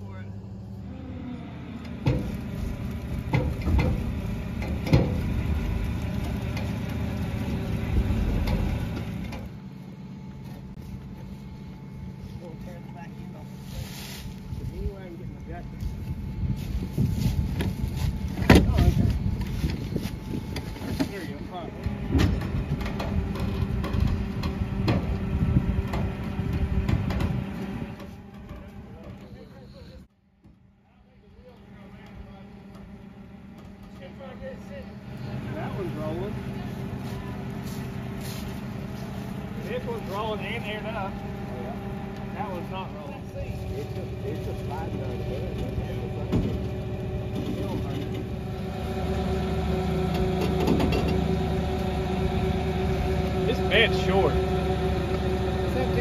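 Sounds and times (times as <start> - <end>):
truck engine running: 0.0 - 56.0
sharp knocks and clunks: 3.2 - 5.3, 21.8 - 25.2, 25.8 - 29.3, 50.1 - 51.3.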